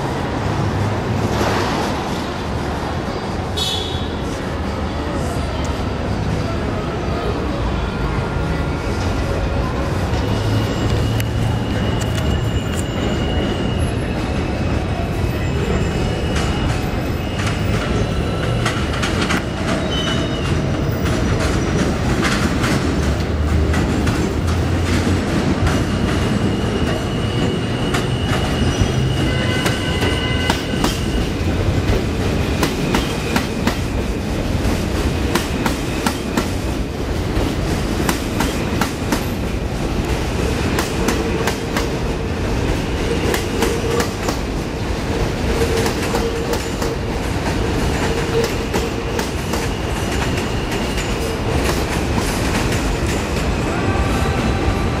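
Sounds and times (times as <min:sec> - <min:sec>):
steady train hum: 0:00.0 - 0:55.0
high wheel squeals: 0:10.0 - 0:18.8, 0:19.6 - 0:21.0, 0:25.7 - 0:31.9, 0:48.0 - 0:52.1
train wheels clattering over rails: 0:15.8 - 0:55.0.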